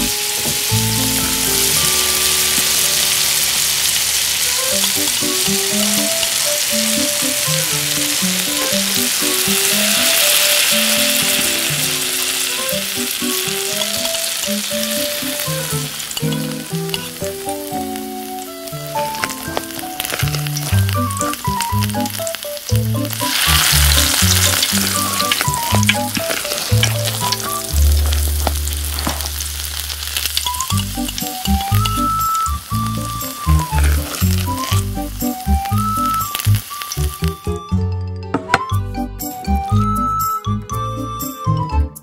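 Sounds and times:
noodles sizzling in a wok: 0:00.0 - 0:37.6
background music: 0:00.0 - 0:42.0
metal utensil scraping a pan: 0:23.2 - 0:30.0, 0:33.6 - 0:34.9.

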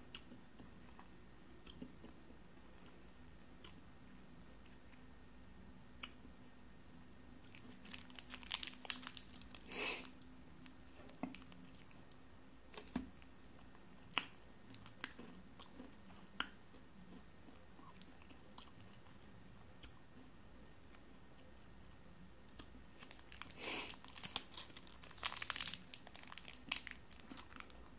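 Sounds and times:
chocolate crunching: 0:07.4 - 0:12.1, 0:12.7 - 0:19.2, 0:22.5 - 0:27.9
foil wrapper crinkling: 0:07.5 - 0:10.2, 0:23.0 - 0:27.9.

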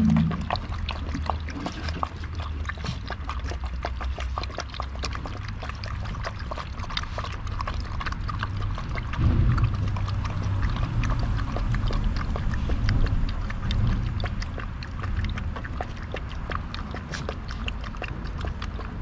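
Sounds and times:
low rumble: 0:00.0 - 0:01.3, 0:07.7 - 0:17.0
puppies lapping water: 0:00.0 - 0:19.0.

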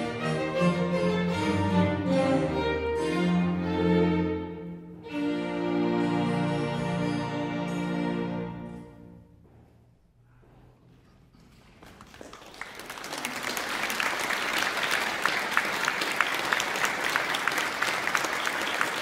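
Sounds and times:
audience applauding: 0:11.5 - 0:19.0.

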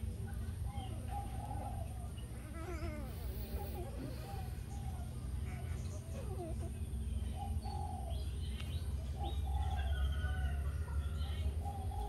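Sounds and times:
birds chirping: 0:00.0 - 0:12.0
soft cooing calls: 0:00.2 - 0:12.0.

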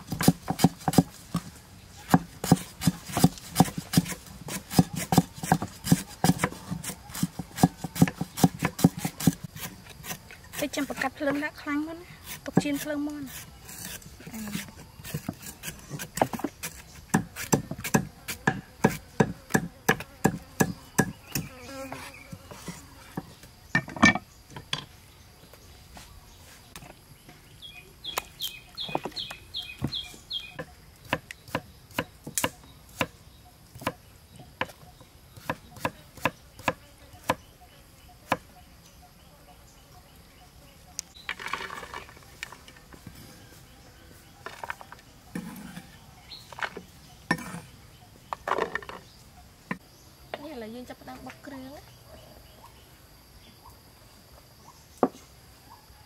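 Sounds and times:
cleaver chopping on wooden board: 0:00.0 - 0:01.5, 0:02.1 - 0:11.4, 0:12.3 - 0:22.1, 0:35.4 - 0:37.4
faint insect drone: 0:05.1 - 0:56.0.

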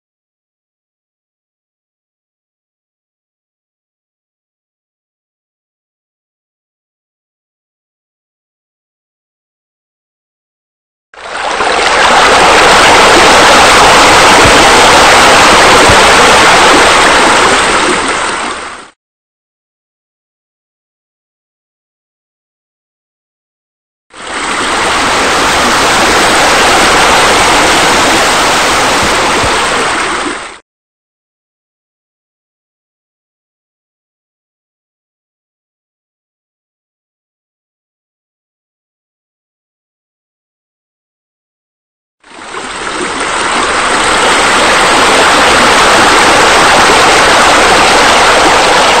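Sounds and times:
falling water rushing: 0:11.2 - 0:18.9, 0:24.2 - 0:30.6, 0:42.3 - 0:49.0.

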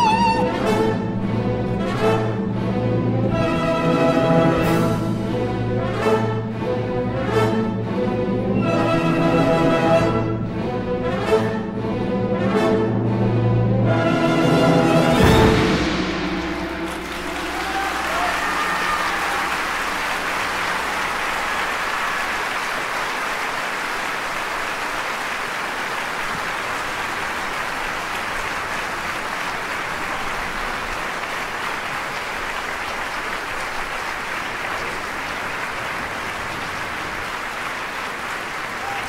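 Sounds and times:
audience applauding: 0:00.0 - 0:01.0, 0:16.2 - 0:39.0.

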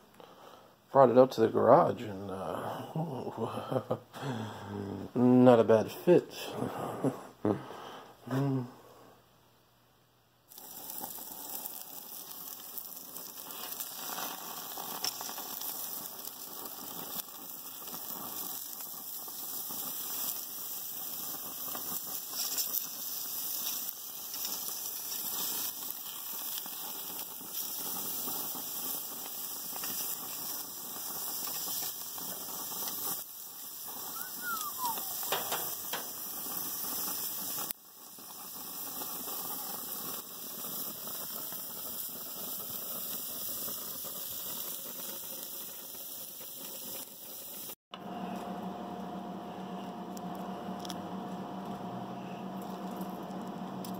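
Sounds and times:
steaks sizzling on grill: 0:10.5 - 0:47.8
short falling squeak: 0:34.1 - 0:35.7.

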